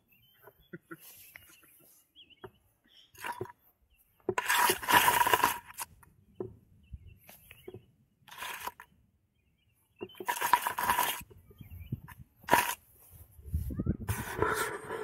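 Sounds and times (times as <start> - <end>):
microphone rustling in grass: 10.8 - 15.0.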